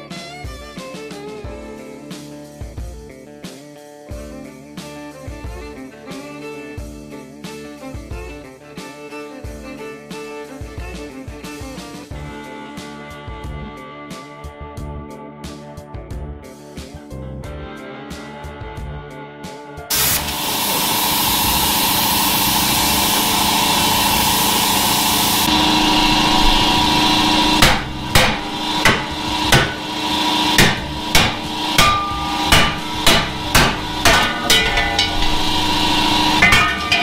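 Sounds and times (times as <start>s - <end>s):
hammer blows on steel: 19.9s - 37.0s
loud steady hiss: 19.9s - 37.0s
steady hum: 20.2s - 37.0s.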